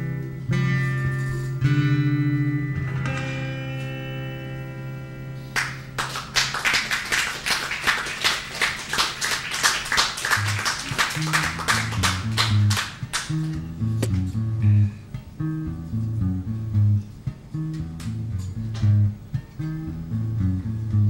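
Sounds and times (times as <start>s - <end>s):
acoustic guitar chords strummed: 0.0s - 5.5s.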